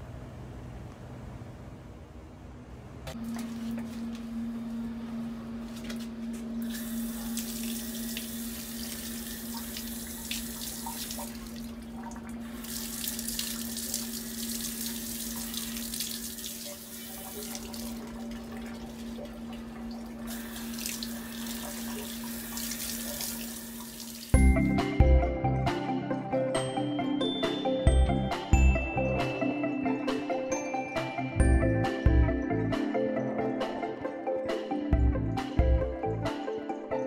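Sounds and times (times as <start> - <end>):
steady low hum: 0.0 - 24.3
hissing water spray: 6.6 - 11.4, 20.3 - 24.3
music: 24.3 - 37.0.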